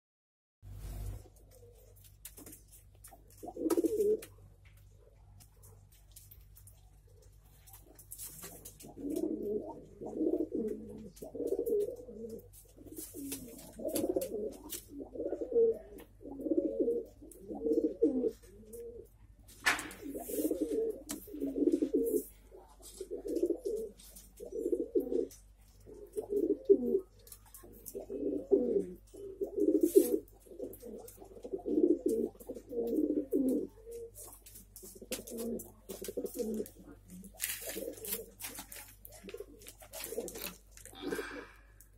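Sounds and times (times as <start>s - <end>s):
pigeons cooing: 3.3s - 4.3s, 8.5s - 19.1s, 19.9s - 41.6s.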